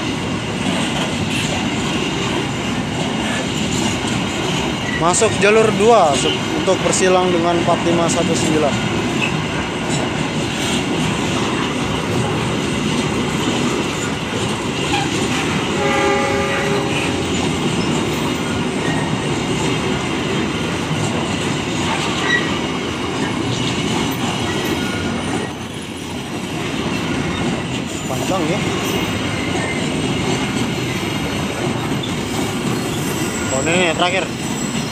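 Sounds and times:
train wheels on rails: 0:00.0 - 0:34.9
train horn blast: 0:15.7 - 0:17.4.

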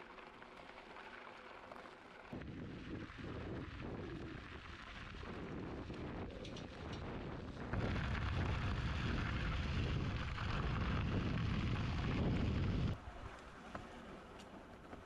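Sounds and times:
wind rumble on microphone: 0:02.3 - 0:13.3.

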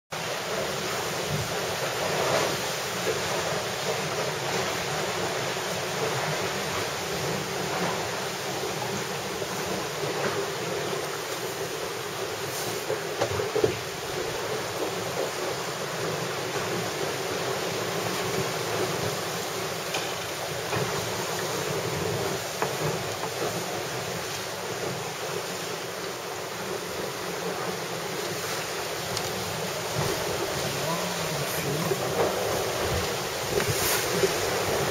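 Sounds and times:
water rushing along boat hull: 0:00.1 - 0:34.9
faint knocks from boat: 0:12.5 - 0:15.4, 0:18.2 - 0:25.1.

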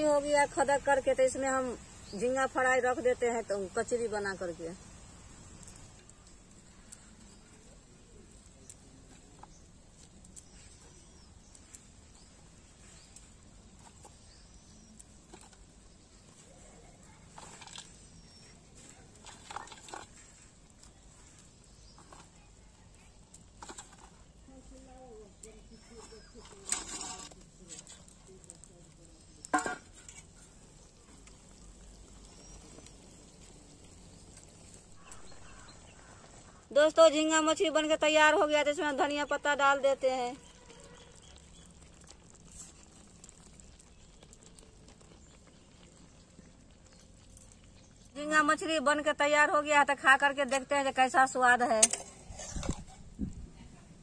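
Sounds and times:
curry bubbling in a pan: 0:00.0 - 0:54.0
soft ticks: 0:05.5 - 0:07.2
faint high bird chirps: 0:40.4 - 0:41.8.

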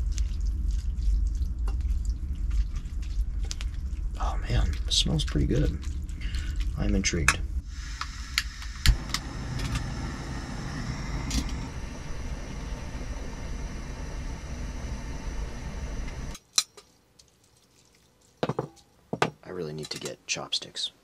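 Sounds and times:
camp stove rushing: 0:07.6 - 0:16.4.

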